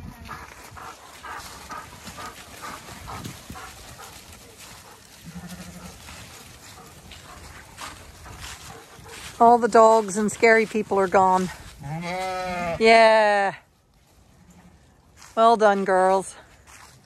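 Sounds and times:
sheep hooves on muddy ground: 0:00.0 - 0:17.0
low sheep bleat: 0:05.2 - 0:06.0, 0:11.8 - 0:13.6.

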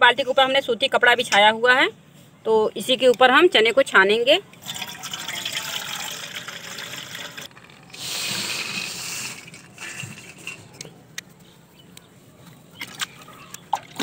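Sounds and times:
water pouring into steel bucket: 0:04.6 - 0:10.6.

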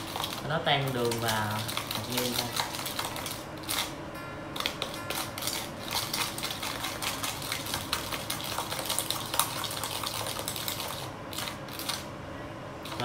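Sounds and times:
utensil clicking against bowl: 0:00.0 - 0:03.9.

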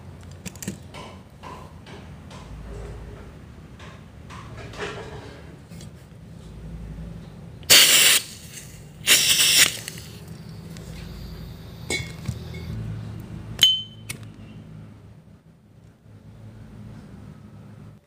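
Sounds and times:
gas hissing from can: 0:07.7 - 0:12.7.

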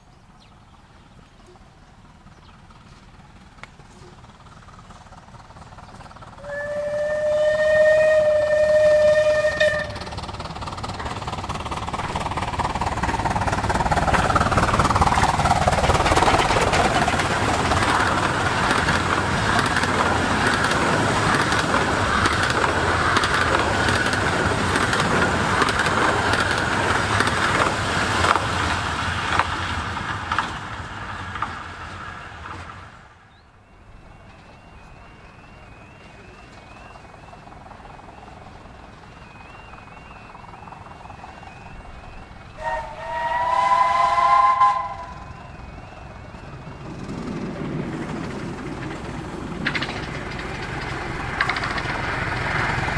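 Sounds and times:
train running past: 0:00.0 - 0:52.9
steam locomotive whistle: 0:06.4 - 0:10.3, 0:39.2 - 0:46.4
carriages clattering over rail joints: 0:09.1 - 0:32.9, 0:46.8 - 0:52.9.

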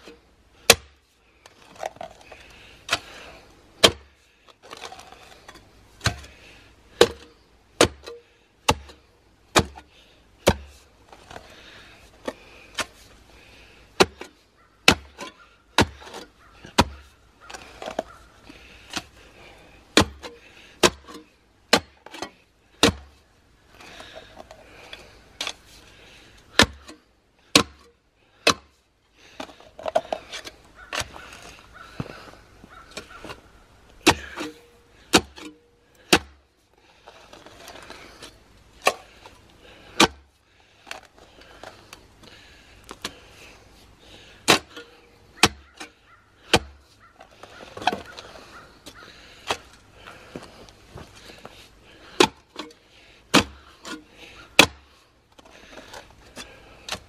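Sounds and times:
post-hole digger thunking into dirt: 0:07.0 - 0:10.8, 0:14.0 - 0:17.1, 0:20.0 - 0:23.1, 0:44.4 - 0:45.9, 0:53.3 - 0:54.0, 0:54.6 - 0:54.8.

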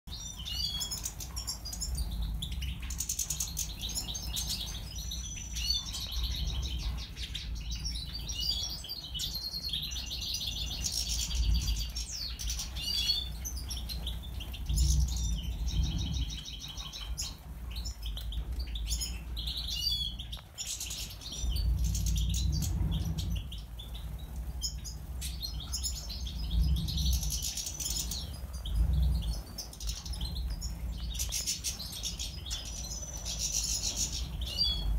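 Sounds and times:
goldfinches chirping and twittering: 0:00.1 - 0:34.9
low rumble: 0:09.9 - 0:34.9.

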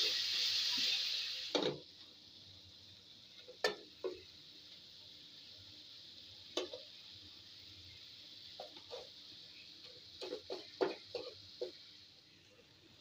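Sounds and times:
chicken sizzling in oil: 0:00.0 - 0:13.0
wooden spatula knocking on pan: 0:10.2 - 0:11.8.

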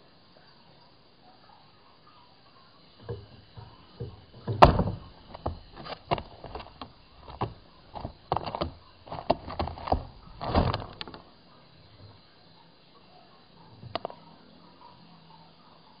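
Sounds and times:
knocks and rattles: 0:03.0 - 0:11.2.

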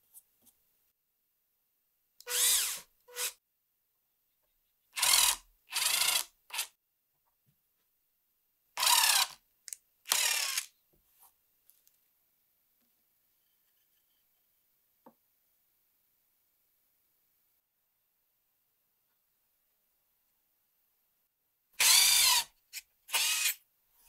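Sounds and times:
power drill boring into wood: 0:02.2 - 0:03.4, 0:05.0 - 0:06.7, 0:08.8 - 0:09.4, 0:10.1 - 0:10.7, 0:21.8 - 0:22.5, 0:23.1 - 0:23.6.

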